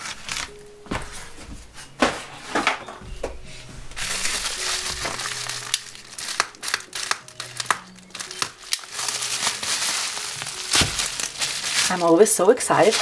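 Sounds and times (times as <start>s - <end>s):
bubble wrap mailer crinkling: 0.0s - 0.7s, 3.9s - 13.0s
sharp plastic crackles: 4.0s - 13.0s.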